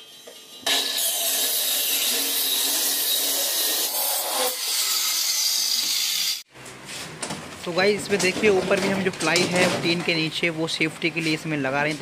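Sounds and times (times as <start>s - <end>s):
circular saw cutting plywood: 0.0s - 6.5s.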